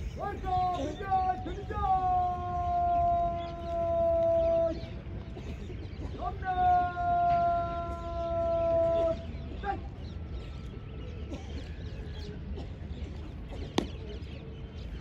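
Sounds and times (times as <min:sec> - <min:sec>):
low steady background noise: 0:00.0 - 0:15.0
drawn-out shouted command: 0:00.1 - 0:04.8, 0:06.1 - 0:10.0.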